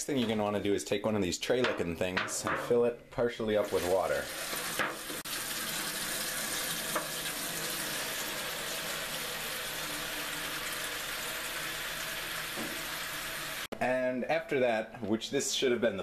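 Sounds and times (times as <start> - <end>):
tap water running into foil pan: 3.6 - 13.7.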